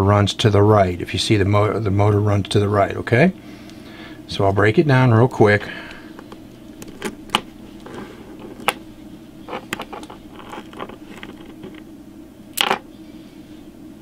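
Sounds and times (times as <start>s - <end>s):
plastic parts clicking: 6.2s - 8.8s.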